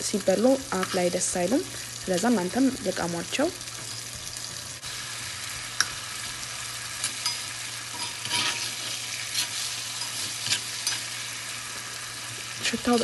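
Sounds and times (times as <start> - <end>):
liver sizzling in oil: 0.0 - 13.0
metal spoon scraping a pan: 0.8 - 1.2, 6.9 - 11.6.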